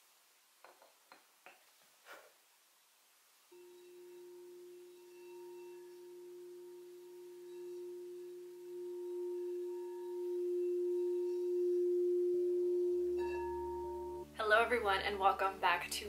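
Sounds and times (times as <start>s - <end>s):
crystal singing bowl ringing: 3.5s - 14.3s.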